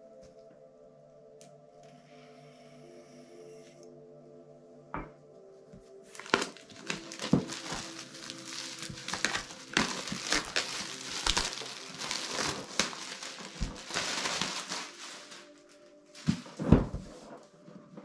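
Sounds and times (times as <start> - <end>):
plastic wrap tearing and crinkling: 6.1 - 17.2.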